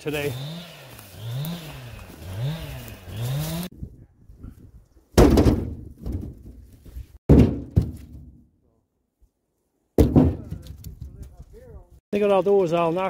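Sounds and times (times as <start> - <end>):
logs thudding into metal trailer: 5.1 - 8.5, 10.0 - 10.8.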